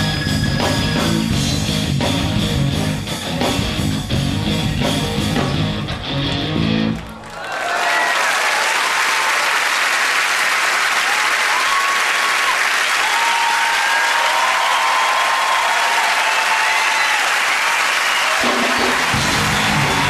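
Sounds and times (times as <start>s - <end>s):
crowd cheering: 5.8s - 20.0s
audience applauding: 5.9s - 20.0s.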